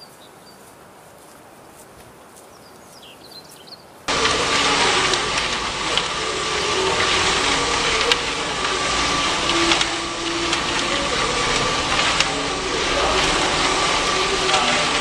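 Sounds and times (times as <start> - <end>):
washing machine running: 4.1 - 15.0.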